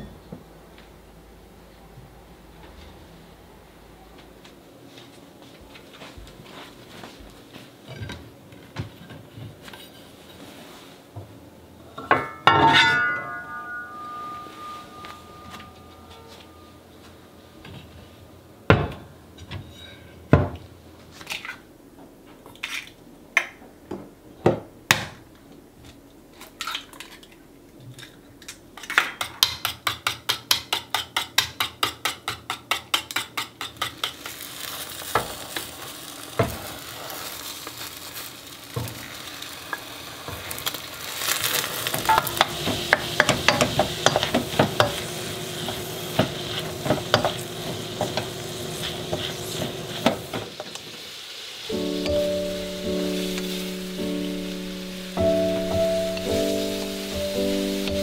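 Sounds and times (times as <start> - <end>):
frying hiss: 4.9 - 16.0, 28.7 - 58.0
kitchenware knocks and clinks: 12.0 - 16.2
spatula scraping a frying pan: 41.1 - 50.4
utensil beating against metal bowl: 42.1 - 45.0.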